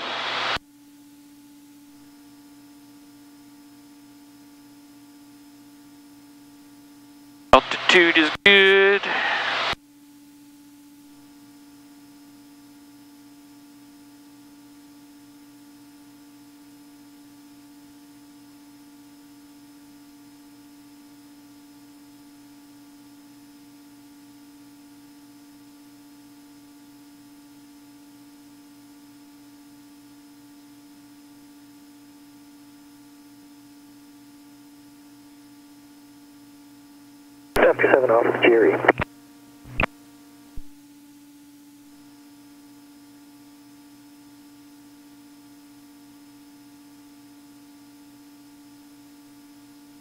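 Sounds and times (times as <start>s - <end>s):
faint electrical hum: 28.2s - 50.0s
faint pulsing drone: 37.6s - 39.0s.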